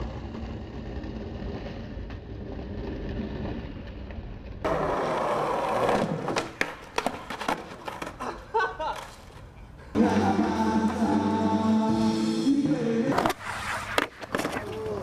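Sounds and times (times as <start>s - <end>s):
skateboard clacks: 0.0s - 9.5s
skateboard wheels rolling: 0.0s - 11.8s, 13.0s - 15.0s.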